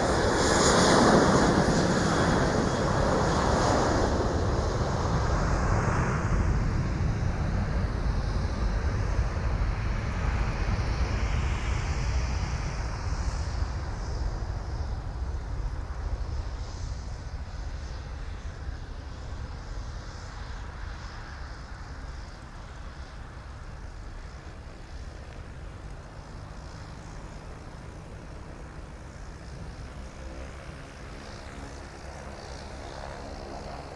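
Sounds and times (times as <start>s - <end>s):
jet engines rumbling: 0.0s - 33.9s
propeller plane engine drone: 0.0s - 33.9s.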